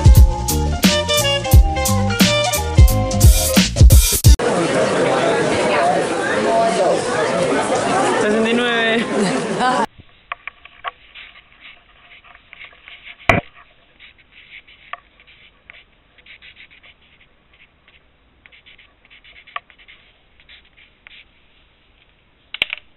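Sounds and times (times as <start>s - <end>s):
pencil scratching on paper: 10.5s - 21.4s.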